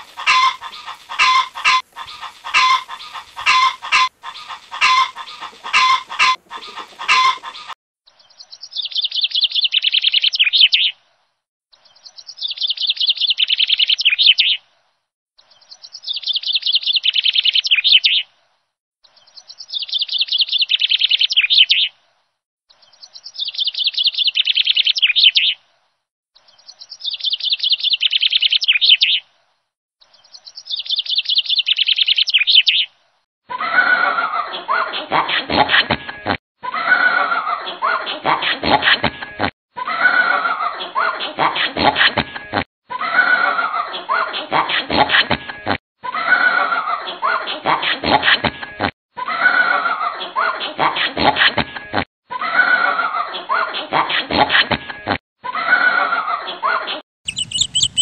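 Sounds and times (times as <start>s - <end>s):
chickens clucking: 0.0s - 7.8s, 57.3s - 58.0s
songbird trilling: 0.2s - 7.6s, 57.3s - 58.0s.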